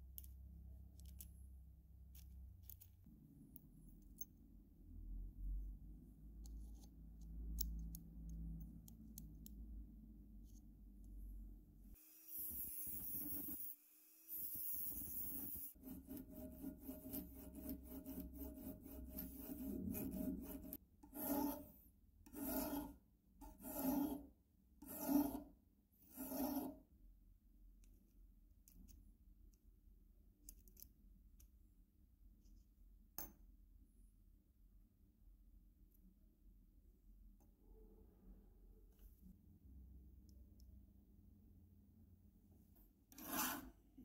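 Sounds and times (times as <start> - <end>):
faint clicks of lock parts: 0.1 - 3.1, 30.4 - 31.6
file rasping on steel: 14.4 - 26.8, 43.1 - 43.8.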